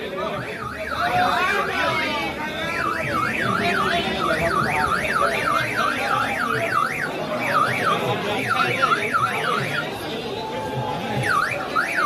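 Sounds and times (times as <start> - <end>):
crowd chatter: 0.0 - 12.0
electronic warning siren warbling: 0.4 - 9.8.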